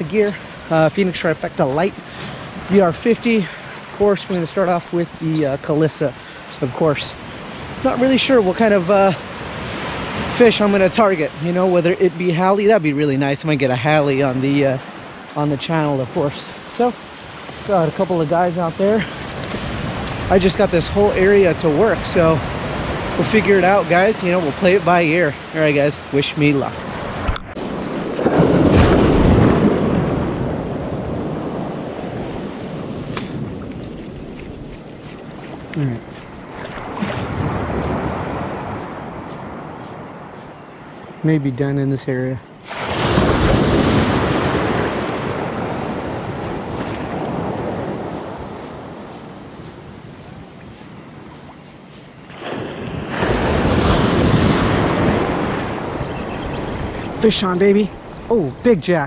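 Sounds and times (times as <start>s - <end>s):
waves breaking in shallows: 0.0s - 41.3s, 42.4s - 59.0s
small surf washing up beach: 0.0s - 59.0s
wind on microphone: 19.0s - 26.1s, 26.7s - 41.0s, 42.6s - 58.8s.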